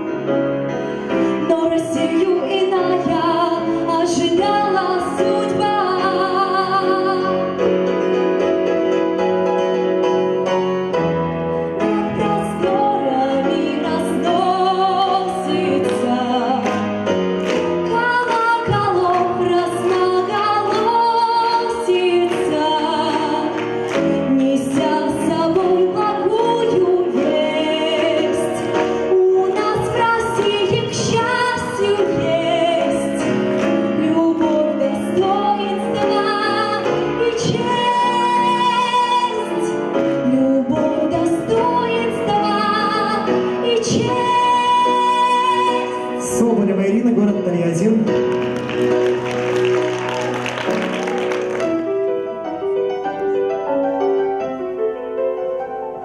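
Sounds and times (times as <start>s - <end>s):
grand piano: 0.0s - 56.0s
woman singing into microphone: 1.2s - 7.6s, 11.8s - 17.0s, 17.8s - 47.1s.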